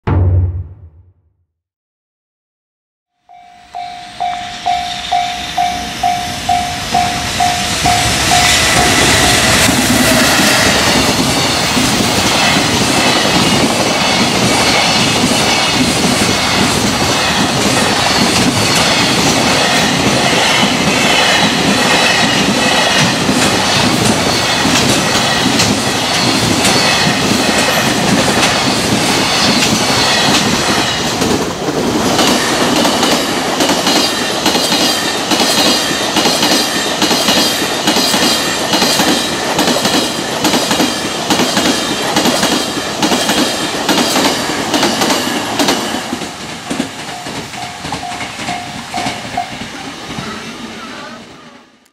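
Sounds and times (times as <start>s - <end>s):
level crossing bell ringing: 3.2s - 9.4s
freight train passing: 3.3s - 51.9s.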